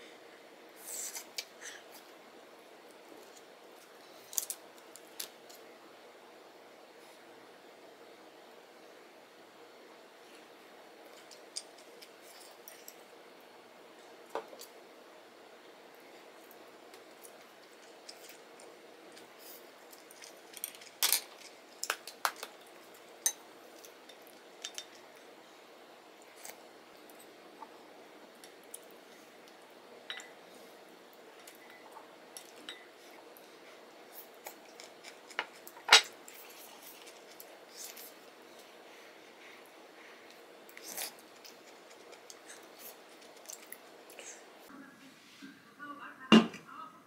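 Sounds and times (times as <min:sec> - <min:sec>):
utensils clinking on dishes: 0:19.9 - 0:25.2, 0:30.0 - 0:30.4, 0:31.4 - 0:33.0.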